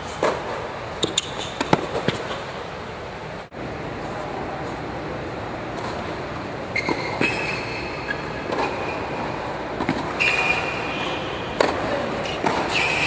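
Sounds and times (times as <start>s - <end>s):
racket hitting ball: 0.2s - 2.5s, 6.8s - 13.0s
shoes squealing on court: 1.0s - 2.4s, 6.7s - 9.3s, 10.1s - 13.0s
tennis ball bouncing: 1.0s - 2.4s, 6.7s - 13.0s.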